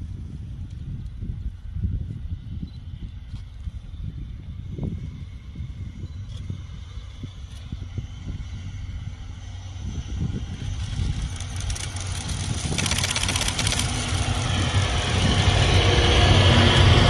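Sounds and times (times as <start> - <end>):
steady low hum: 0.0 - 17.0
train passing: 0.0 - 17.0
wheel clicks: 10.8 - 14.6.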